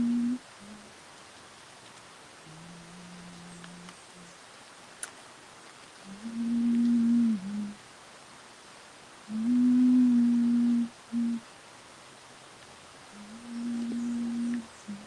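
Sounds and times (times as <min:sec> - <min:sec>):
person humming a low note: 0:00.0 - 0:00.9, 0:02.5 - 0:04.3, 0:06.1 - 0:07.8, 0:09.3 - 0:11.4, 0:13.2 - 0:15.0.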